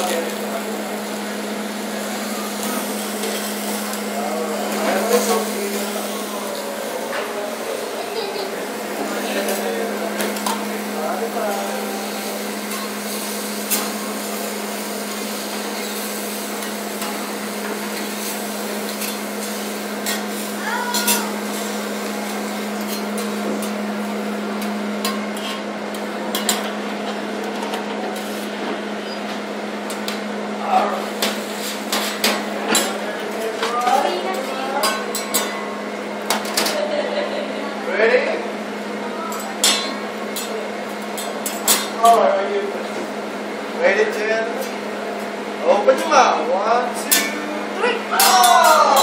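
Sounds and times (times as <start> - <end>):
faint voices: 0.0 - 12.6
food sizzling on a griddle: 0.0 - 26.8, 29.9 - 35.8.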